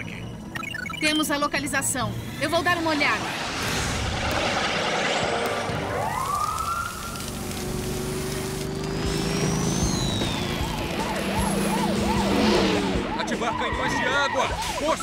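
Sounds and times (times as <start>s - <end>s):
vehicle engines humming: 1.5s - 15.0s
jet plane whooshing: 2.1s - 7.6s, 9.0s - 14.7s
siren wailing: 5.2s - 7.4s, 9.5s - 15.0s.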